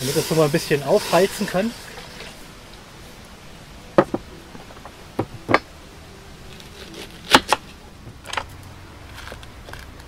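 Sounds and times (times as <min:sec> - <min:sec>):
knife knocking on wooden table: 0:04.0 - 0:04.2.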